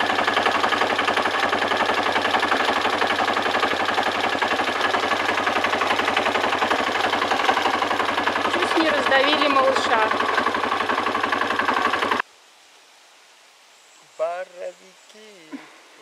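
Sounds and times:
quad bike engine idling: 0.0s - 12.2s.

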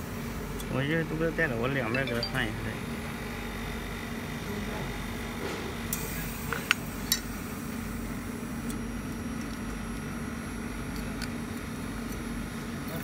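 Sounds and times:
steady low hum: 0.0s - 4.4s.

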